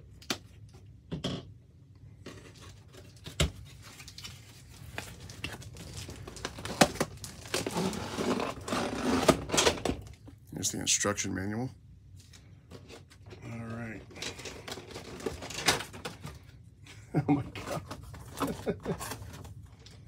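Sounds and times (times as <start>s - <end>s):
plastic wrap crinkling and tearing: 2.5s - 9.6s, 14.3s - 16.2s.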